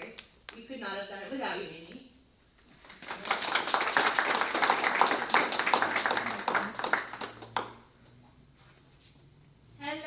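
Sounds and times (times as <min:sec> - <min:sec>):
audience applauding: 0:02.8 - 0:07.8.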